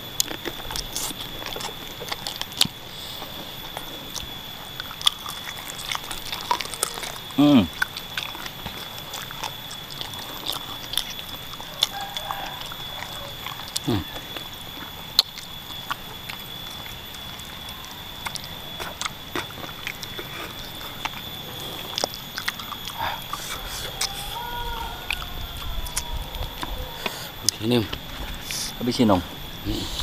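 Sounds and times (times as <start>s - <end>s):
chewing and sucking chicken feet: 0.1s - 28.8s
wet smacking clicks: 0.2s - 24.3s.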